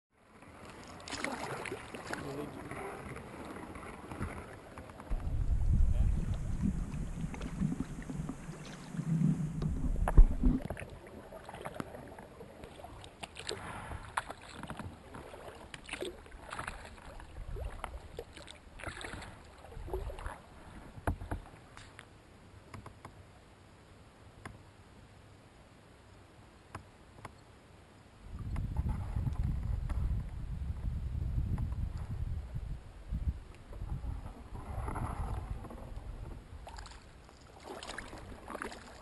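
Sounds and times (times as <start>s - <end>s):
water lapping at kayak bow: 0.2s - 23.4s, 28.2s - 39.0s
paddle splashing in water: 0.3s - 22.0s, 33.6s - 39.0s
low rumble: 5.1s - 10.9s.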